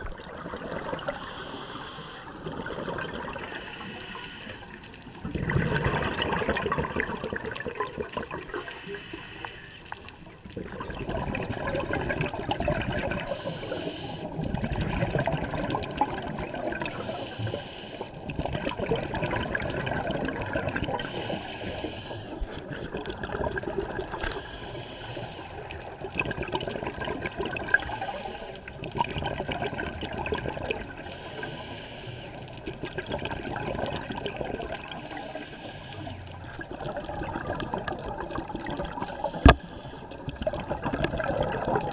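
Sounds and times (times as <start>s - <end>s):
muffled underwater bubbles: 0.0s - 41.9s
regulator breathing: 1.2s - 2.6s, 3.4s - 4.9s, 13.3s - 14.4s, 16.9s - 18.2s, 21.0s - 22.7s, 24.2s - 25.7s, 31.0s - 32.6s.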